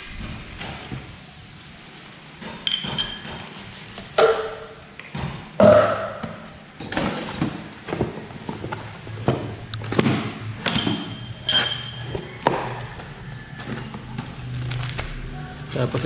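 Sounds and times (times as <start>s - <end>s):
ringing clink: 10.7s - 12.2s
packaging rustling: 13.6s - 16.0s.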